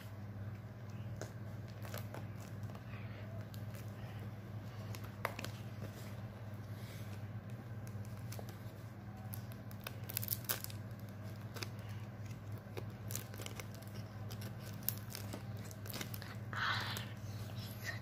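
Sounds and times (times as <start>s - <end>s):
steady low hum: 0.0s - 18.0s
plastic film crinkling: 0.7s - 18.0s.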